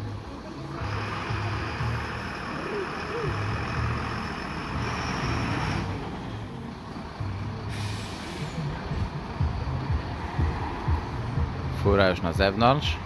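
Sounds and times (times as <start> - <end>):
diesel engine running: 0.0 - 11.9
air brake hiss: 7.7 - 8.8.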